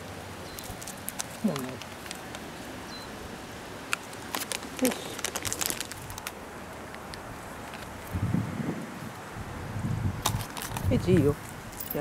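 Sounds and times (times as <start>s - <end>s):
plastic packet crinkling: 0.6s - 2.5s, 3.9s - 6.4s.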